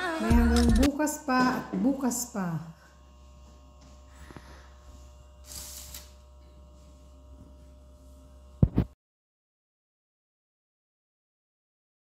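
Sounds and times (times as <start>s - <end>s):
brief hiss: 5.4s - 6.1s.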